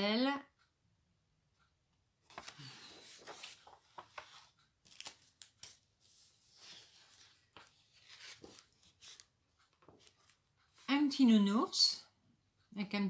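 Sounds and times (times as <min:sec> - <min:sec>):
plastic sleeves crinkling: 0:02.3 - 0:05.8.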